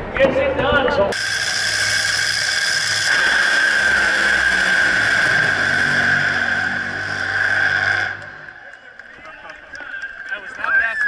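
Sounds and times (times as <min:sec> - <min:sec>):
racing car engine at full throttle: 0:01.1 - 0:08.8.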